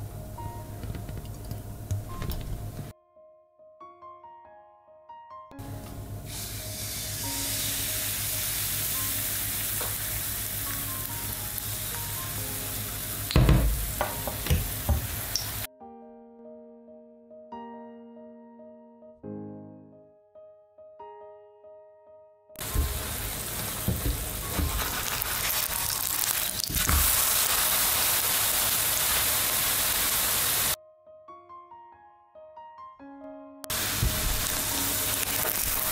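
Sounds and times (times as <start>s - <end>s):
batter sizzling in frying pan: 6.1s - 15.7s, 22.6s - 30.8s, 33.7s - 35.9s
spatula knocking on pan: 13.3s - 15.2s.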